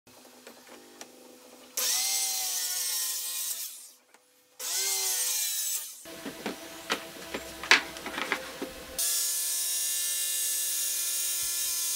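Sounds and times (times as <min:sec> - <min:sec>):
circular saw cutting wood: 0:01.8 - 0:04.0, 0:04.6 - 0:11.9.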